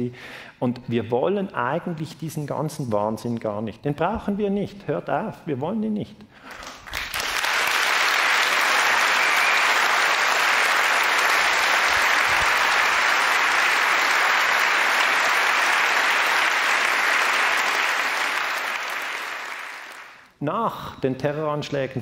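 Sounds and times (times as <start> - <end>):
audience applauding: 6.5 - 20.3.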